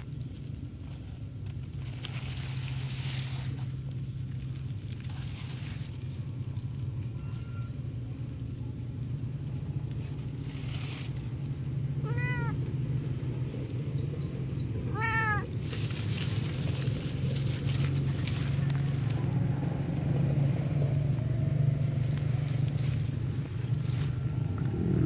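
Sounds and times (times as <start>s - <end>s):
cat meowing: 7.2s - 7.8s, 12.0s - 12.7s, 14.9s - 15.5s.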